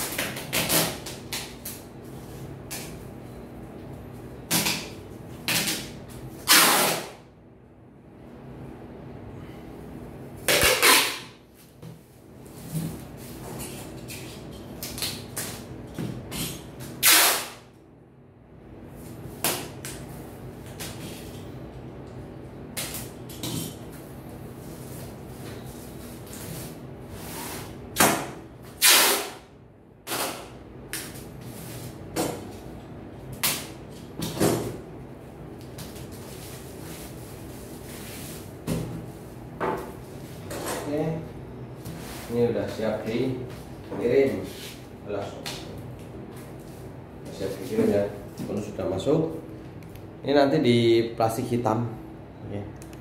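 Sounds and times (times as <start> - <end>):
packing tape pulled off roll: 5.5 - 7.2, 10.5 - 11.3, 17.0 - 17.6, 28.8 - 29.4.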